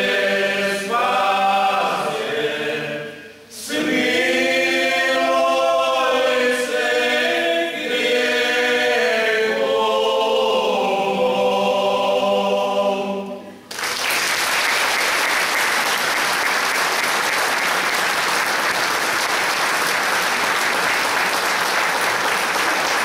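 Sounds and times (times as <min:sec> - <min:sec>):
men singing a cappella hymn: 0:00.0 - 0:13.5.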